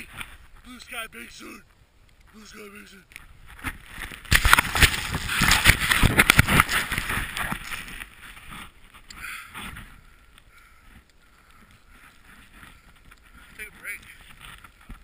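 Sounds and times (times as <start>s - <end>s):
snowboard rushing through powder snow: 4.0s - 8.8s.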